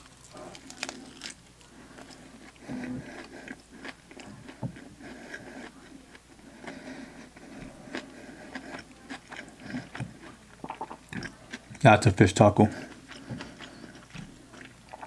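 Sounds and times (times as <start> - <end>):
person chewing crunchy food: 0.0 - 11.8, 12.7 - 15.0
wet mouth sounds: 8.5 - 11.4, 13.1 - 15.0.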